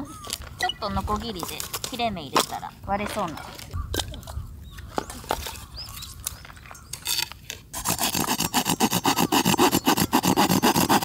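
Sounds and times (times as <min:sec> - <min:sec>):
handsaw sawing wood: 0:07.8 - 0:11.0.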